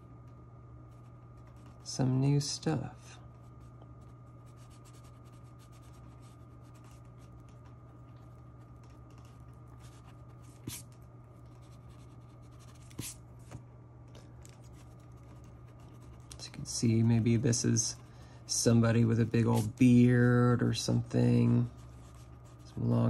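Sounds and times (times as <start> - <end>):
steady low hum: 0.0 - 23.0
eraser rubbing on paper: 9.8 - 10.9, 11.7 - 13.2, 19.2 - 19.9.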